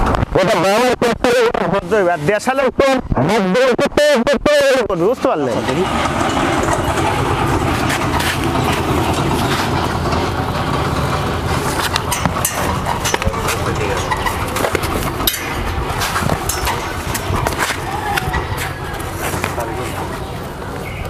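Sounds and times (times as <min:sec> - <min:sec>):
motor engine running: 0:05.0 - 0:21.0
sharp clicks and knocks: 0:05.6 - 0:19.6.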